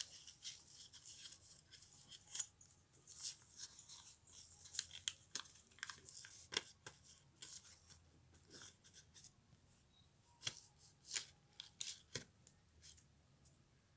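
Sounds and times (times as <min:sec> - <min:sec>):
paper crinkling and rustling: 0:00.0 - 0:09.3
paper crackling: 0:03.1 - 0:07.8.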